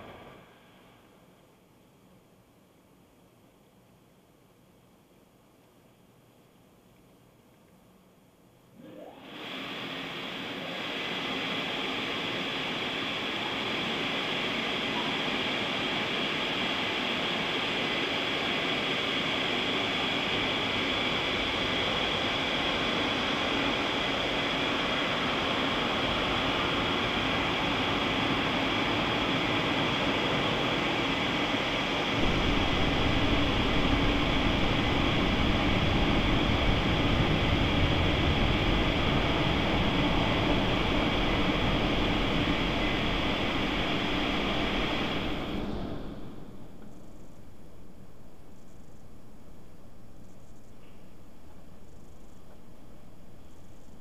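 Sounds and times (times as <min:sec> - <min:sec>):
car wash machinery rushing: 0:09.2 - 0:46.7.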